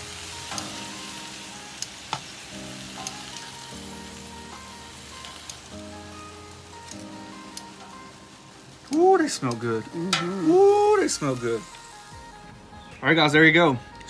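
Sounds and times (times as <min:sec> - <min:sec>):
kebabs sizzling on a griddle: 0:00.0 - 0:14.0
soft background music: 0:00.0 - 0:14.0
metal tongs clicking: 0:03.0 - 0:03.5.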